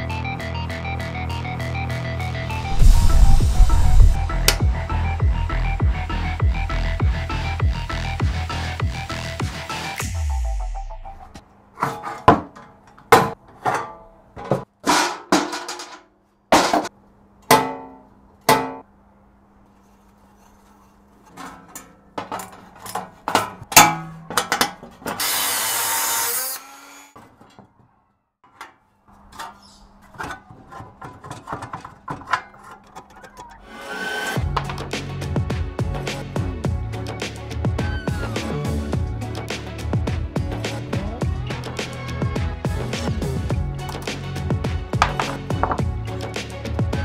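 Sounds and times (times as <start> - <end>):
noisy burst: 2.6 - 4.7
tools knocking on steel parts: 21.3 - 25.2, 44.9 - 45.9.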